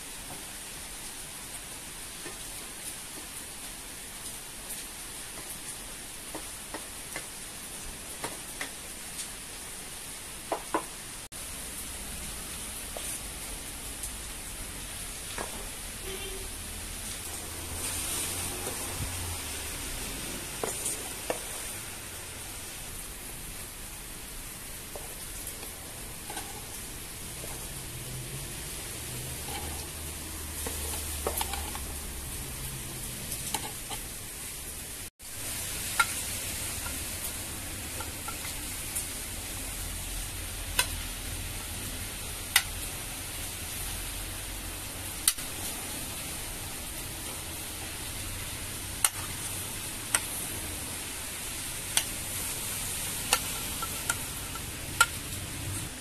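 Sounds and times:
steady hiss: 0.0 - 56.0
spatula scraping in a frying pan: 17.1 - 19.8, 20.4 - 21.8, 25.0 - 27.7, 28.7 - 32.5, 33.2 - 34.2, 51.8 - 55.9.

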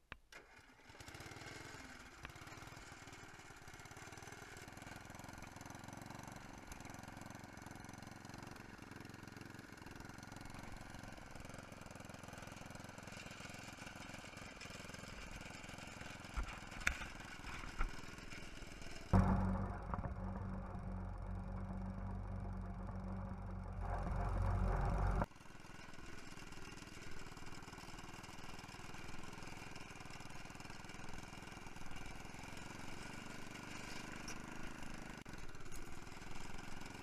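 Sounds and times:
tractor engine running: 2.4 - 25.3
gear clunks: 19.2 - 25.3.

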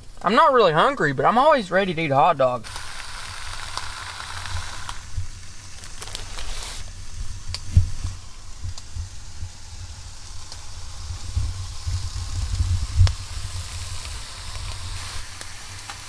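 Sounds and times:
hot dogs sizzling on grill: 0.0 - 16.0
low uneven rumble: 0.0 - 16.0
small pops: 2.6 - 9.6.

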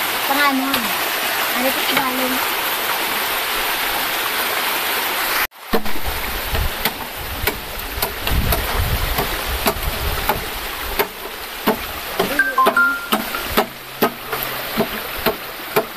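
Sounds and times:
stream water running: 0.0 - 15.9
machete chopping bamboo: 11.0 - 12.4.

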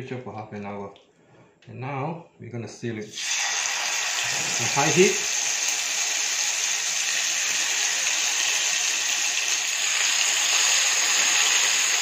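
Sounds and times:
chicken sizzling in hot oil: 3.1 - 12.0.

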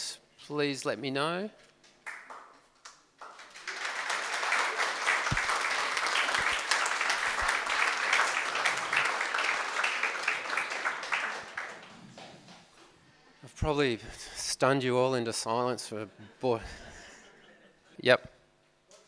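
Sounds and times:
audience clapping: 1.8 - 12.7.

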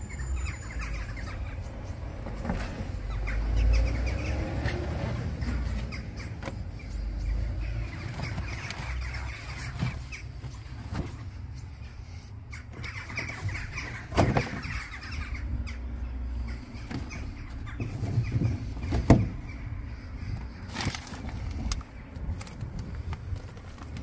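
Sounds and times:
steady low rumble: 0.8 - 24.0
rustling in a car boot: 2.2 - 3.1, 7.6 - 11.8, 16.8 - 19.5, 20.4 - 24.0.

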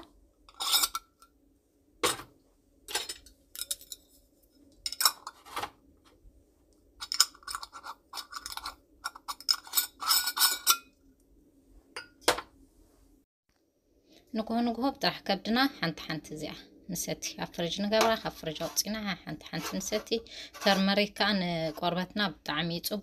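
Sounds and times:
lid threads scraping: 19.6 - 20.9.

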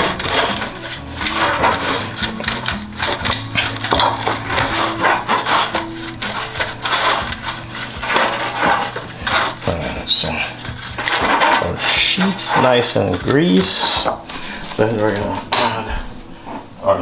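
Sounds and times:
pastry brush scraping metal tin: 0.0 - 16.5.

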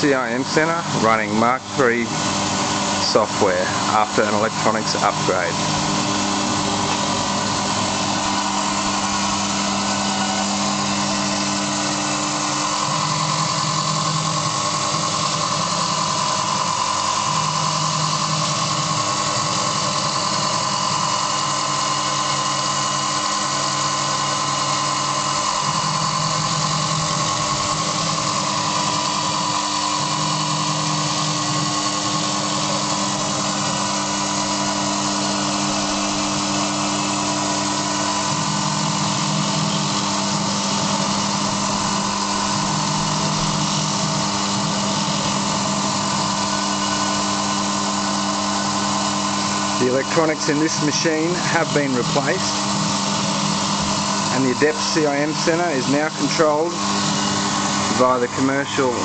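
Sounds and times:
low machine hum: 0.0 - 59.0
milling machine spindle whine: 0.0 - 59.0.

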